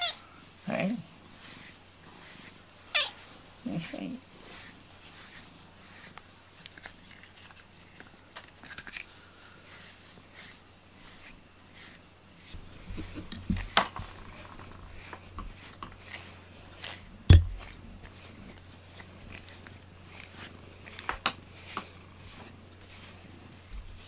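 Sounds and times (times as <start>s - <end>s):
cat rubbing against camera: 1.3s - 8.0s, 9.6s - 24.0s
loud thump: 17.3s - 17.6s.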